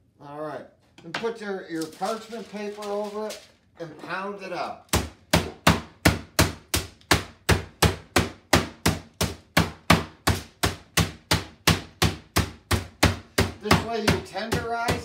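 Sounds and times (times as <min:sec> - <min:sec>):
meat mallet pounding chicken: 0:04.9 - 0:15.0.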